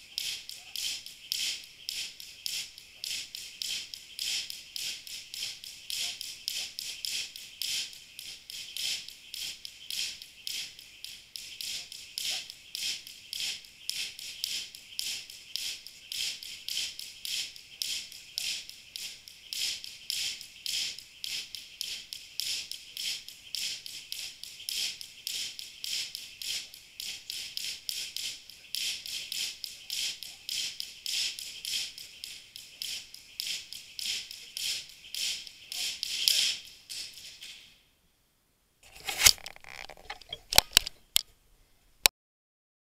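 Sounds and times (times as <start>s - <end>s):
jump rope slapping floor: 0.2s - 37.4s.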